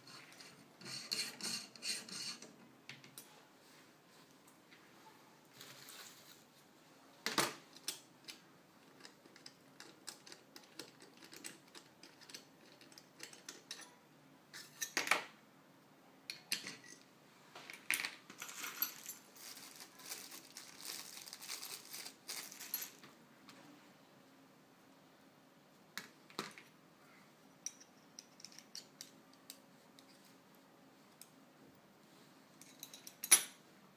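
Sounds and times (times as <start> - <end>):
small metal parts clinking: 17.8 - 23.1, 32.6 - 33.6
plastic packaging crinkling: 19.2 - 23.0.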